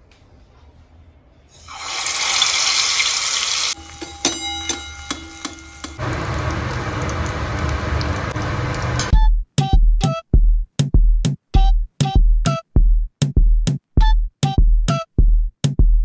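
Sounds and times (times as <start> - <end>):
hot oil sizzling: 1.5 - 9.1
metal spatula clinking on pan: 3.7 - 6.0.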